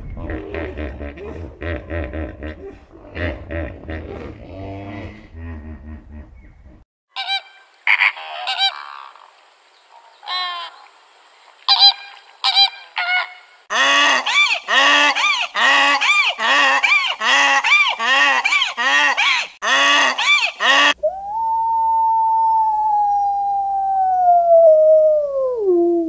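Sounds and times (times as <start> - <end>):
flamingos honking: 7.2 - 9.2, 11.7 - 21.0.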